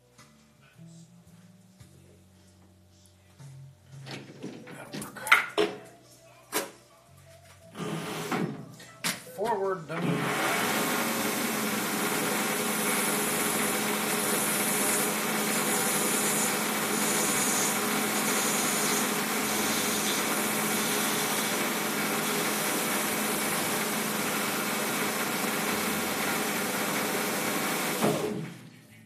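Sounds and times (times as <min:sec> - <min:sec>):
lathe motor hum: 0:10.0 - 0:28.5
high hiss of cutting: 0:12.4 - 0:23.4.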